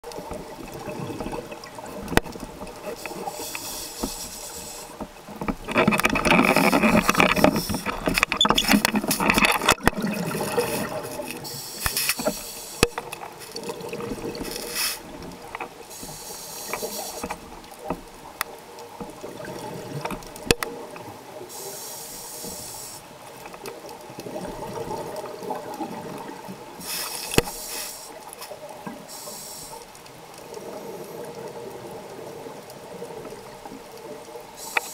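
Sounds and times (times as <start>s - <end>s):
regulator hissing inhalations: 3.0s - 5.0s, 10.7s - 12.9s, 14.5s - 15.0s, 15.9s - 17.4s, 21.5s - 23.1s, 26.8s - 28.2s, 29.1s - 29.9s, 34.6s - 34.9s
exhaled bubbles rushing: 9.1s - 11.2s, 13.5s - 15.5s.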